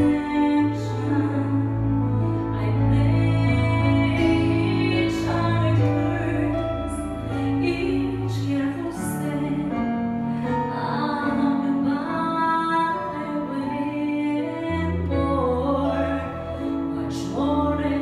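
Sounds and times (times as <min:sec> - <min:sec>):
synthesizer bass notes: 0:00.0 - 0:10.7
woman singing into microphone: 0:00.0 - 0:18.0.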